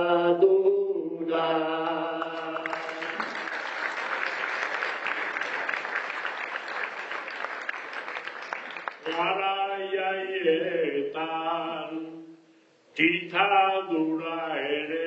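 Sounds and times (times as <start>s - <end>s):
man singing: 0.0s - 3.3s, 9.0s - 12.4s, 13.0s - 15.0s
audience applauding: 2.2s - 9.3s.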